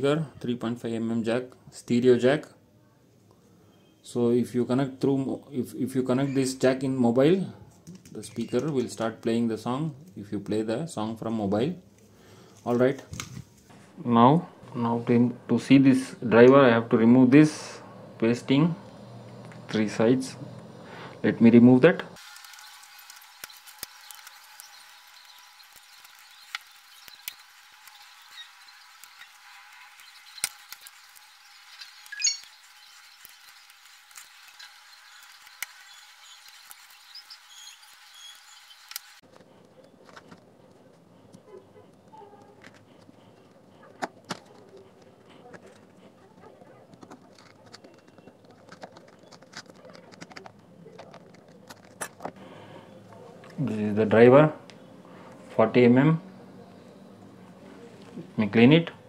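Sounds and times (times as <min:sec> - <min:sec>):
tweezers scraping plastic: 0:23.1 - 0:52.4.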